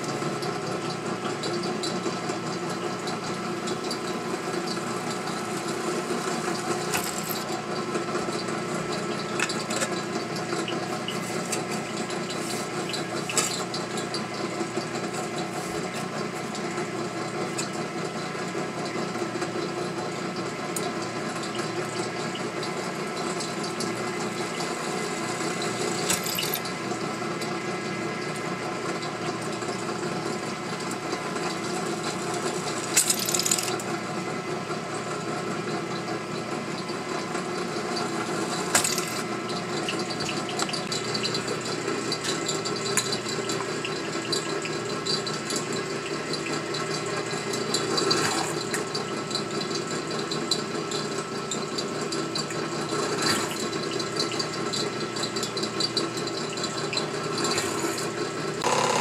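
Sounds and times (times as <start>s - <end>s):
drill press motor running: 0.0s - 59.0s
drill bit cutting sheet metal: 47.8s - 48.8s, 53.0s - 53.7s, 57.3s - 59.0s.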